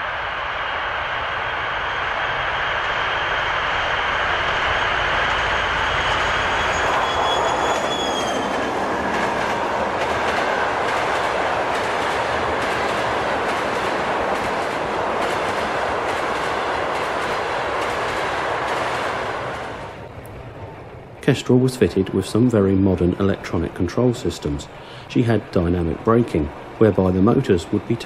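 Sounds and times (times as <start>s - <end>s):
high whine: 0.0s - 11.7s
diesel locomotive passing: 0.0s - 28.0s
train wheels clicking on rail joints: 5.3s - 20.4s.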